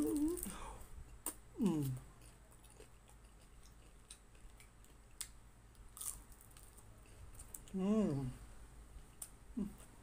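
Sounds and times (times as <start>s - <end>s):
chewing crispy food: 0.0s - 7.8s.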